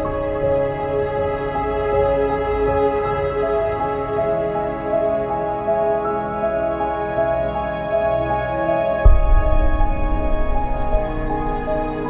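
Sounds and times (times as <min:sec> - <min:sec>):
slow sustained background music: 0:00.0 - 0:12.0
low drone: 0:09.0 - 0:12.0.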